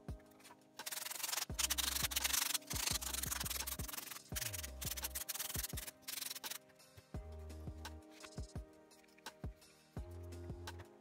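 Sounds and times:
styrofoam being sanded by hand: 0.8 - 6.6.

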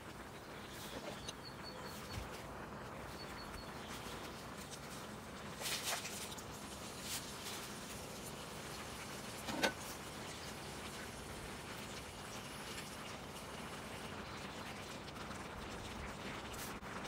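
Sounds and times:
dry noodles rustling into pan: 3.9 - 10.5.

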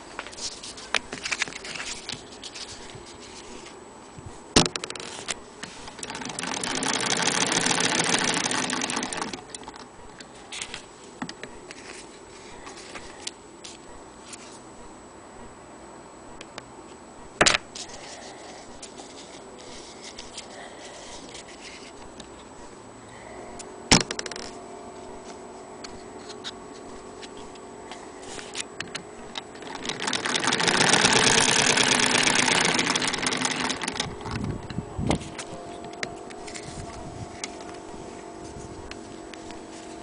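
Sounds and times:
sewing machine clatter: 5.8 - 9.8, 29.4 - 34.4.

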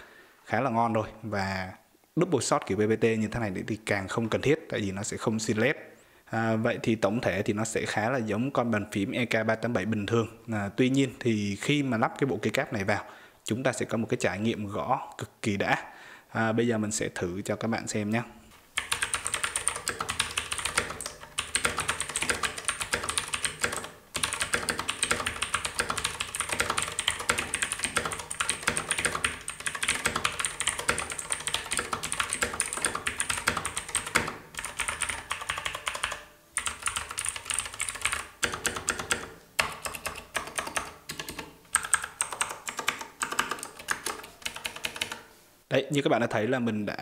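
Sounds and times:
clicky mechanical keyboard typing: 18.8 - 45.2.

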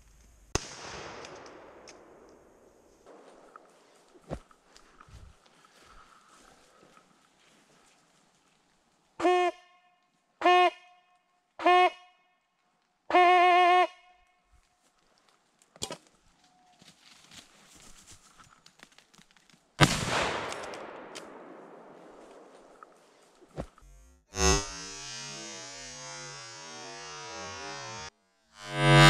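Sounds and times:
gunshot with long echo: 0.6 - 3.6, 19.8 - 22.8
hunting horn blasts: 9.2 - 12.2, 13.1 - 14.2, 26.5 - 29.0.

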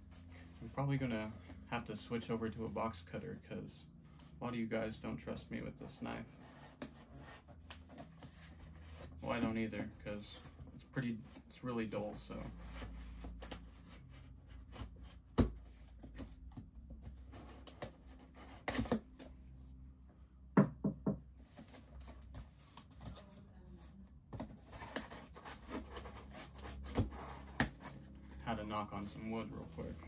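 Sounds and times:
knife cutting cardboard box: 17.3 - 19.1, 24.5 - 28.5.

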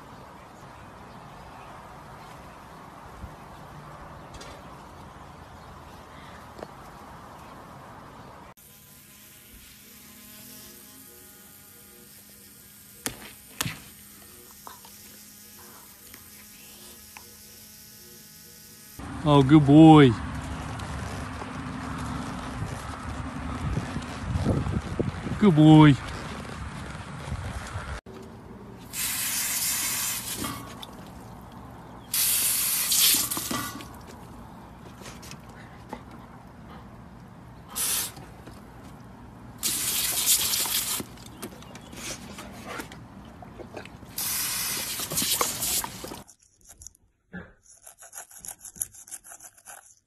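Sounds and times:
electric toothbrush buzzing: 8.6 - 19.2, 28.9 - 30.9, 32.1 - 33.6
hose nozzle water spraying: 28.8 - 34.1, 37.7 - 38.5, 39.6 - 42.3, 44.1 - 46.4.

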